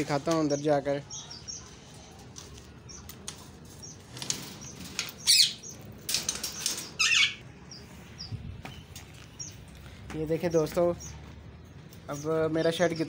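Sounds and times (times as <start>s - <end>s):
birds fluttering wings: 2.2s - 7.0s.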